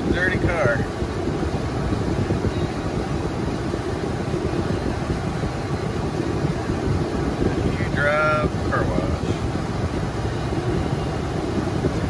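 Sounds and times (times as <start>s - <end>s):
water jets spraying on car: 0.0s - 12.0s.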